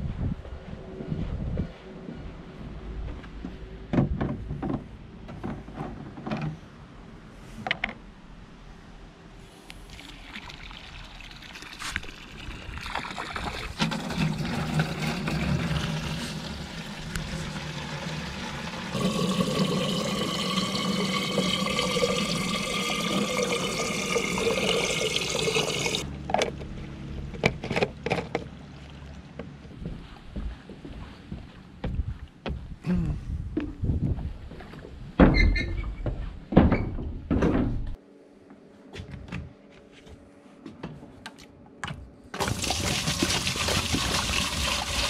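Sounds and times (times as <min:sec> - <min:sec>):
water pouring into plastic can: 0:09.9 - 0:26.0, 0:42.4 - 0:45.0.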